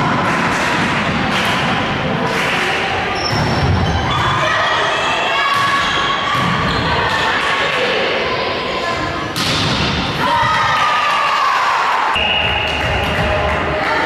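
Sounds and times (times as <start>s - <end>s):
players' voices: 0.0s - 14.0s
volleyball hits and thuds: 9.3s - 10.2s.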